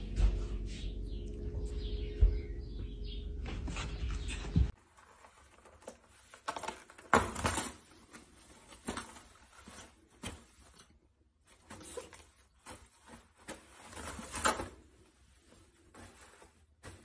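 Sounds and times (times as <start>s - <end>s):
low hum: 0.0s - 4.7s.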